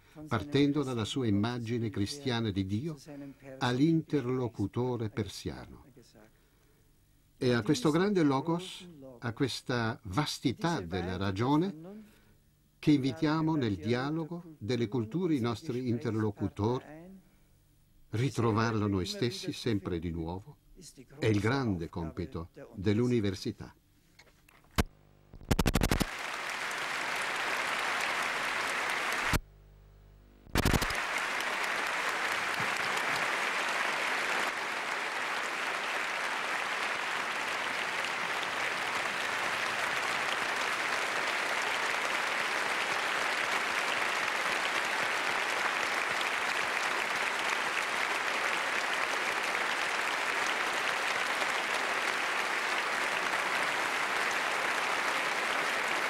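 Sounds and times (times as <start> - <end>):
large audience applauding: 25.4 - 29.4, 30.5 - 56.0.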